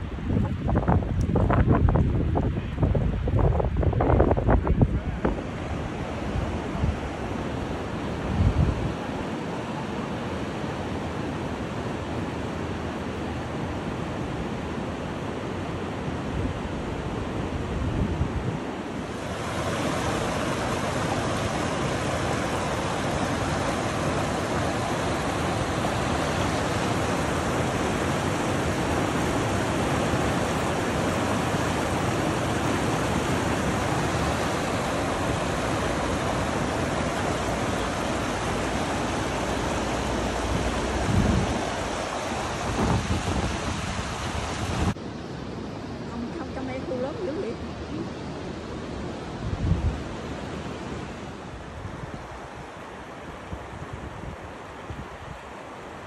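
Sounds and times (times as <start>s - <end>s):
waterfall rushing: 18.9s - 45.0s.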